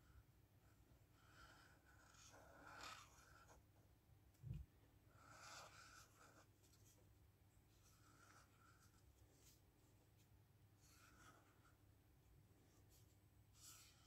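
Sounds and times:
marker scratching on paper: 1.2 - 3.6, 5.1 - 7.0, 7.7 - 11.8, 12.6 - 14.0.

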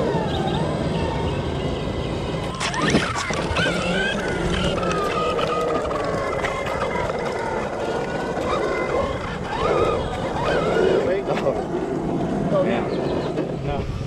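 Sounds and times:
electric motor whine: 0.0 - 14.0
tyres rumbling on pavement: 0.0 - 14.0.

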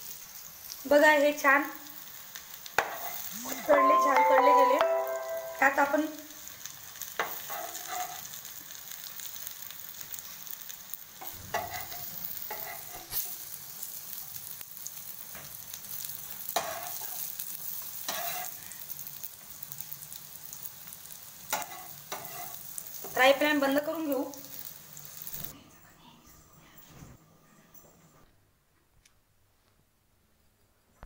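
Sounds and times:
food sizzling in oil: 0.0 - 25.5
spatula scraping a pan: 2.8 - 3.3, 7.2 - 8.4, 11.2 - 13.4, 16.5 - 18.6, 21.5 - 23.1.

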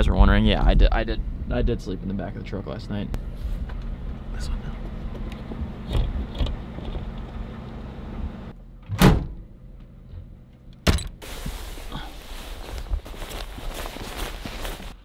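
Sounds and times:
loud thump: 8.9 - 9.4.

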